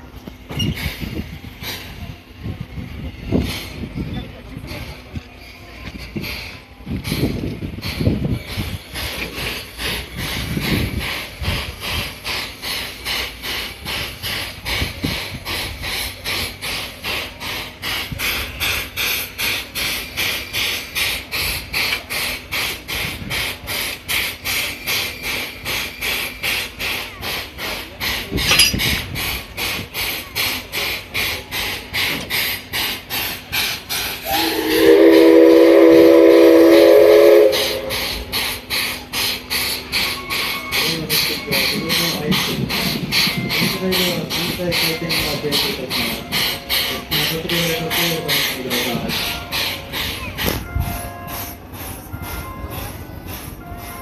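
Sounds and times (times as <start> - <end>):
steam locomotive hissing: 0.0 - 54.0
steam whistle blowing: 34.2 - 38.3.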